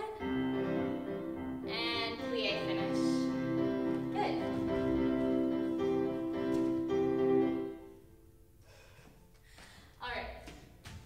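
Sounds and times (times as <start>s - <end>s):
piano music: 0.0s - 8.5s.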